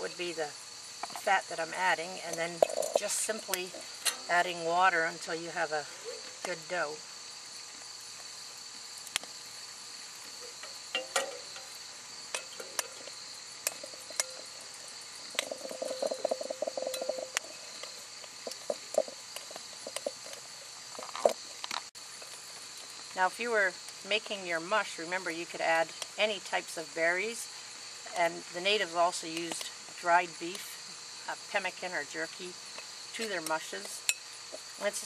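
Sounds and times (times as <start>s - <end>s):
crickets chirping: 0.0s - 35.0s
spoon scraping glass bowl: 15.4s - 17.8s.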